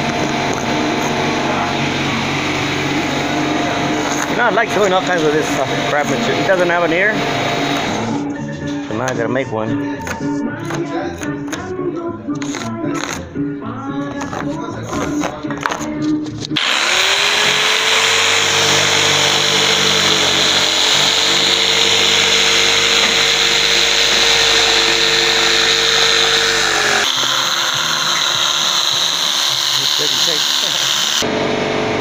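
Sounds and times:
electric jigsaw motor: 0:00.0 - 0:08.2, 0:16.6 - 0:31.3
saw blade cutting board: 0:00.0 - 0:08.2, 0:16.6 - 0:31.3.

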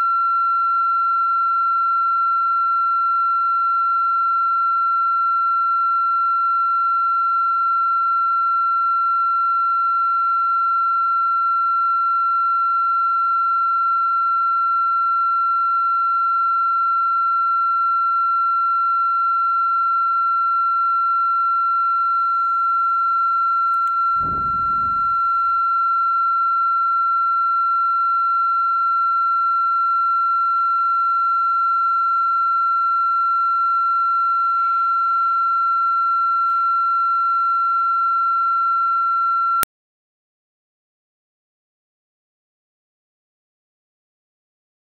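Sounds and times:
click: 0:23.7 - 0:24.0
high-pitched electronic tone: 0:24.1 - 0:25.6
low rumble: 0:24.2 - 0:25.6.

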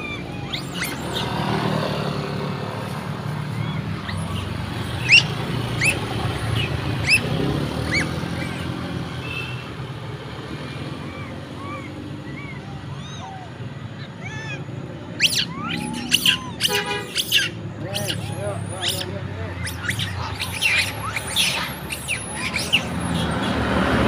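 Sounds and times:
vehicle engine humming: 0:00.0 - 0:24.0
high rising squeals: 0:15.1 - 0:23.5.

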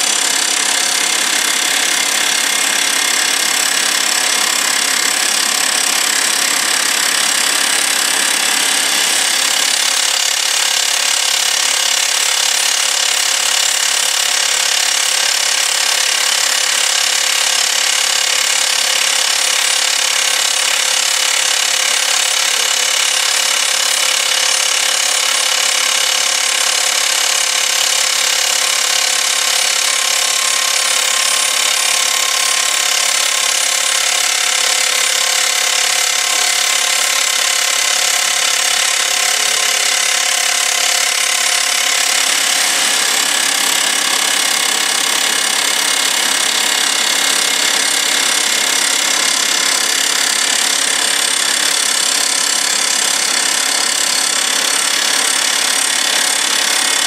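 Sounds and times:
rock drill boring into rock: 0:00.0 - 0:57.0.

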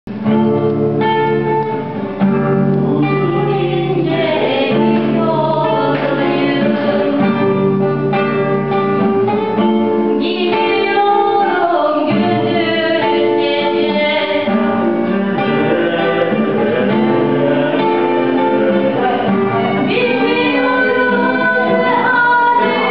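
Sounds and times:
acoustic guitar: 0:00.0 - 0:22.9
violin: 0:02.2 - 0:22.9
person singing: 0:02.8 - 0:07.9, 0:10.2 - 0:22.9.

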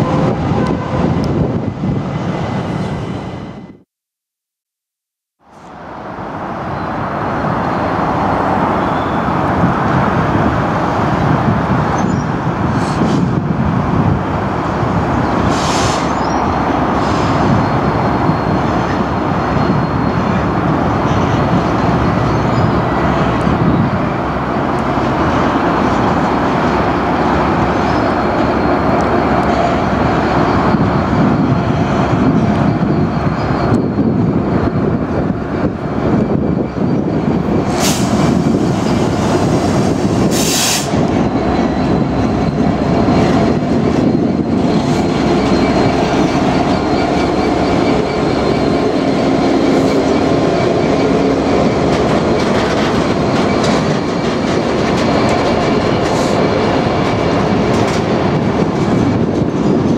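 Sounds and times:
diesel locomotive rumbling: 0:00.0 - 0:03.8, 0:05.4 - 0:59.9
high-pitched squeal: 0:25.0 - 0:59.2.

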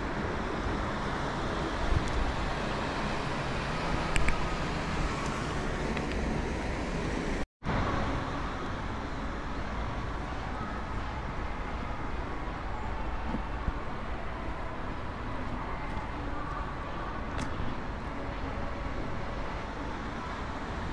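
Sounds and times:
road traffic: 0:00.0 - 0:20.9.

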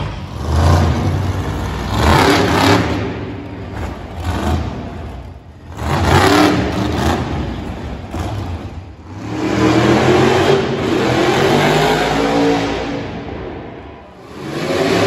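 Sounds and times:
monster truck engine revving: 0:00.0 - 0:15.0.

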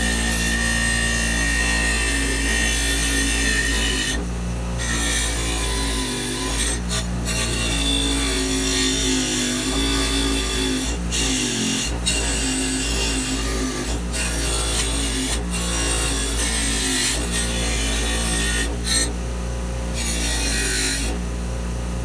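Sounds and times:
bench grinder motor hum: 0:00.0 - 0:22.0
wire wheel scratching metal: 0:04.8 - 0:19.1.

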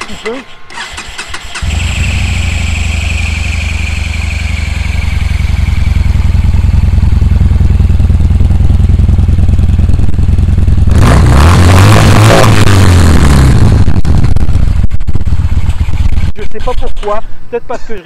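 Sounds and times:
motorcycle engine idling: 0:01.4 - 0:11.0, 0:14.0 - 0:17.6.

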